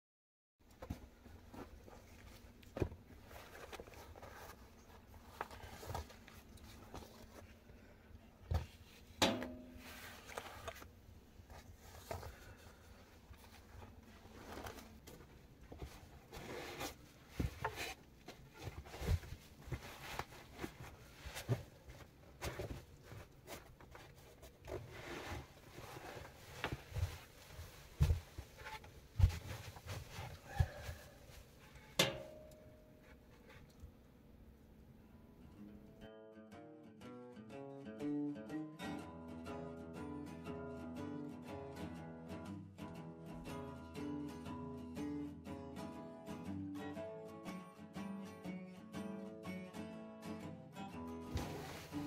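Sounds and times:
fabric bags rustling: 51.3s - 52.0s.

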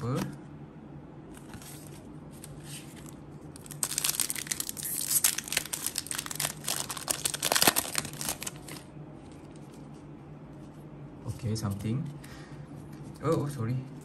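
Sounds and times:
foil wrapper crinkling and tearing: 3.6s - 8.9s.

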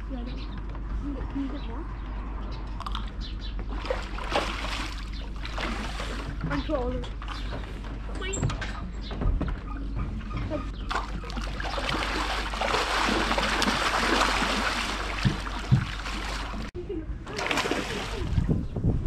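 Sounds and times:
fish splashing in water: 3.7s - 6.4s, 10.9s - 16.7s, 17.3s - 18.4s
dull thumps: 6.4s - 16.7s.

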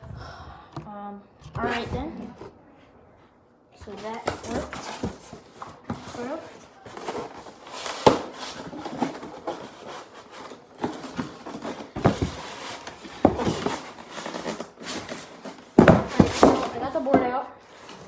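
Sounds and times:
rubbing and scraping packaging: 4.0s - 18.0s.

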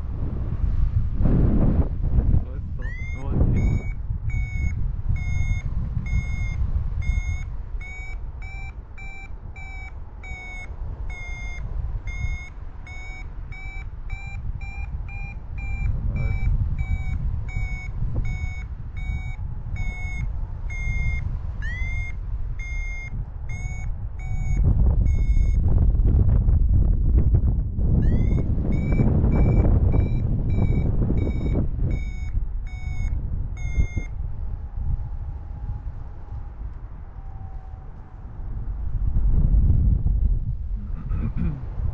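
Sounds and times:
wind noise on microphone: 0.0s - 41.9s
variometer beeping: 2.8s - 25.8s, 27.9s - 35.1s.

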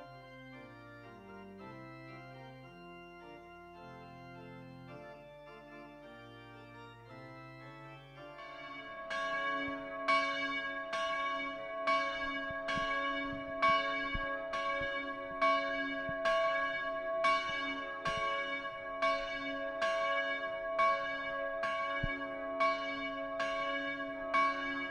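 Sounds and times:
church bell ringing: 8.4s - 24.9s.

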